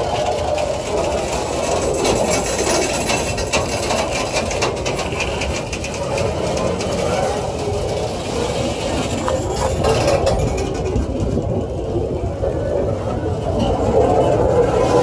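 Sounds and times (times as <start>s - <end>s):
clacks over rail joints: 0.0s - 15.0s
train wheels rumbling on rails: 0.0s - 15.0s.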